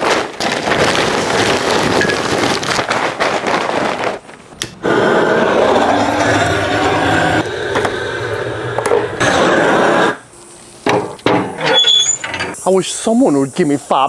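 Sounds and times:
charcoal lumps clattering: 0.0s - 4.8s
gas torch hissing: 4.6s - 10.9s.

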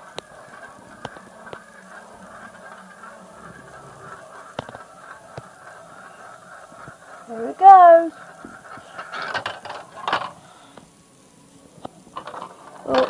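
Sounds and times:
marbles rolling on plastic track: 12.2s - 13.0s.

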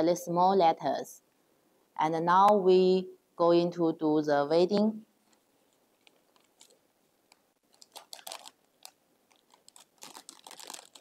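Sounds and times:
vinyl film peeling crackles: 5.2s - 11.0s.

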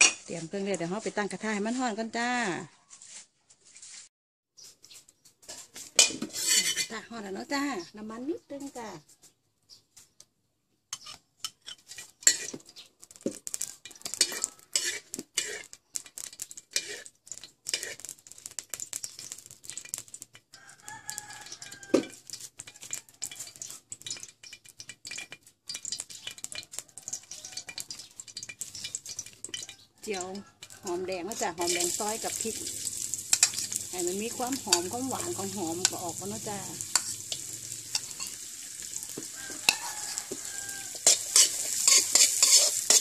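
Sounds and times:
metal ladle scraping a wok: 0.0s - 2.0s, 5.4s - 7.2s, 10.9s - 20.4s, 21.1s - 43.0s
rooster crowing: 13.7s - 14.8s, 20.5s - 23.7s, 26.5s - 27.9s, 29.6s - 31.6s, 33.9s - 42.8s.

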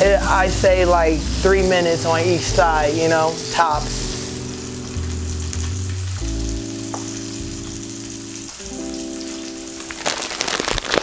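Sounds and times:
background music with held chords: 0.0s - 11.0s
fish sizzling in a pan: 0.0s - 11.0s
plastic bag crinkling: 9.8s - 11.0s.

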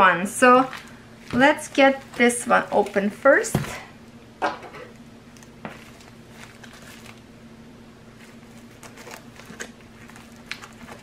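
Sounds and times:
plastic mailer crinkling: 5.8s - 7.3s, 8.1s - 11.0s.

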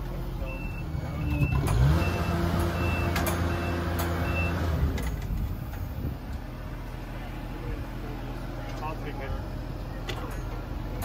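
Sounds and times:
backup alarm beeping: 0.4s - 4.6s.

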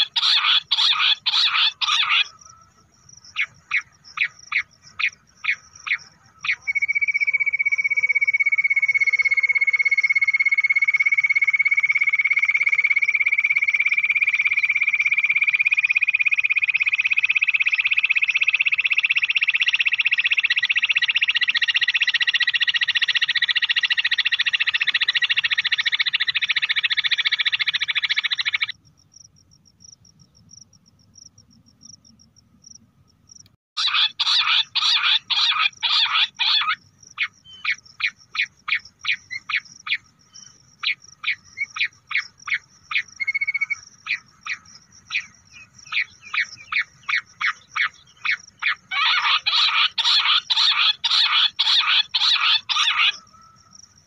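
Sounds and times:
quail rising trill: 0.0s - 2.7s, 33.8s - 40.0s, 40.8s - 53.6s.

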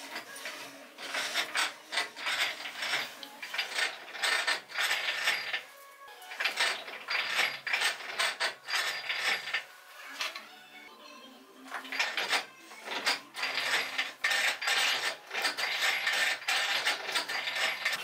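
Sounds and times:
metal lathe cutting metal: 1.0s - 5.6s, 11.8s - 18.0s.

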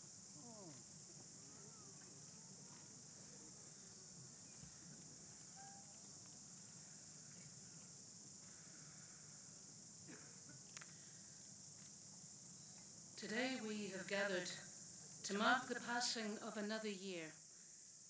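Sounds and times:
faint chirps: 0.0s - 11.6s, 12.4s - 13.8s
faint high hiss: 0.0s - 18.0s.

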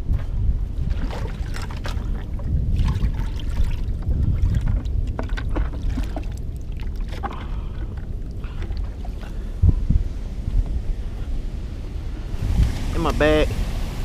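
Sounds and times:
bucket splashing water: 0.8s - 9.3s
rushing churning water: 0.8s - 9.6s.

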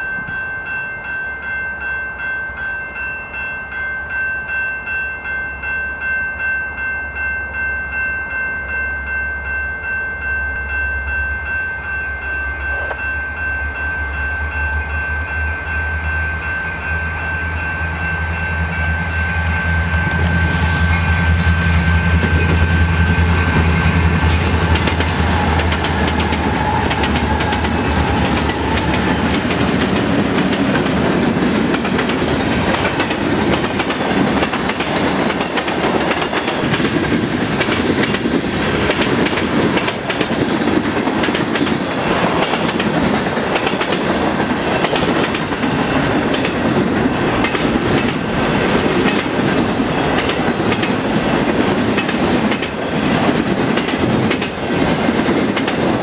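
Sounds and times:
level-crossing bell ringing: 0.0s - 22.2s
diesel locomotive engine rumble: 12.6s - 56.0s.

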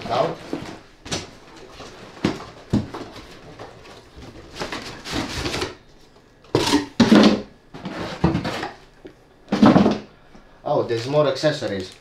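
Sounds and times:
cardboard packaging scraping: 3.2s - 5.8s.

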